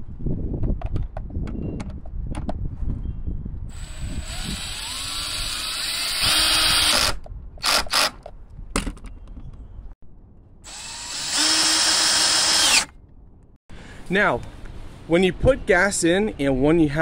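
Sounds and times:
cordless drill driving bolts: 3.8s - 8.2s, 10.7s - 12.9s.

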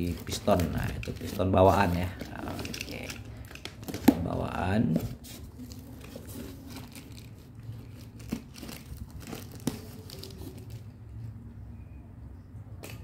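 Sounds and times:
cardboard and plastic rustling: 0.0s - 11.3s.

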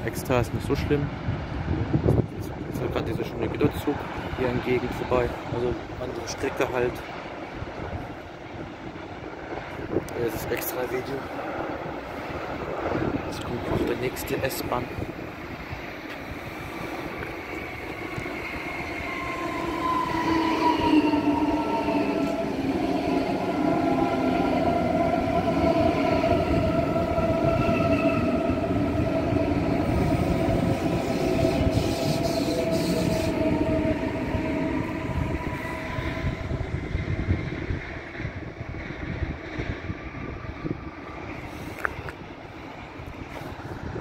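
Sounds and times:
wheels rumbling on rails: 0.0s - 44.0s
electric train whining: 11.3s - 44.0s.

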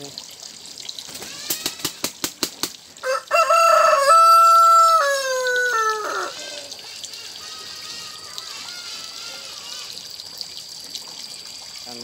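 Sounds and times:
rooster crowing: 3.0s - 6.7s.

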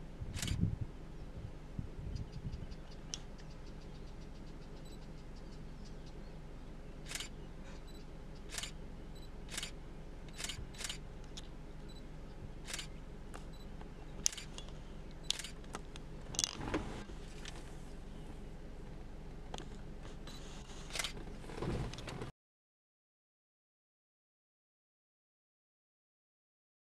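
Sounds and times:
vehicle engine idling: 0.0s - 22.3s
knocks and rustling: 21.2s - 22.3s.

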